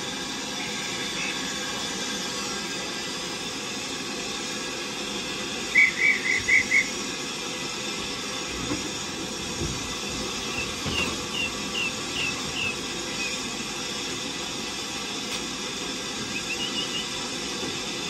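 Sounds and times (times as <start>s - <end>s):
steam hissing: 0.0s - 18.0s.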